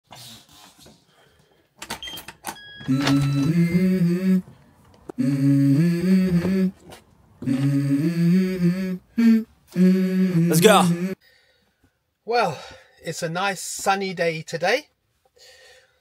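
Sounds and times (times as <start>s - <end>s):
man humming: 2.9s - 4.5s, 5.1s - 11.2s.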